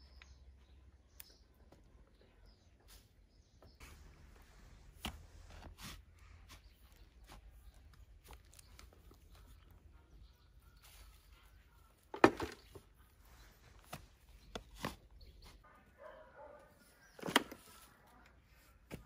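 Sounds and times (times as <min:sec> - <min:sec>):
faint bird chirps: 0:06.4 - 0:19.0.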